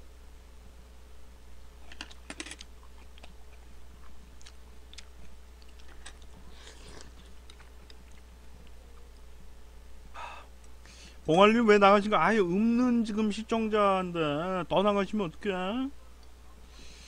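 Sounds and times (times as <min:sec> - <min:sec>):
low steady hum: 0:00.0 - 0:17.0
chewing: 0:01.8 - 0:09.3.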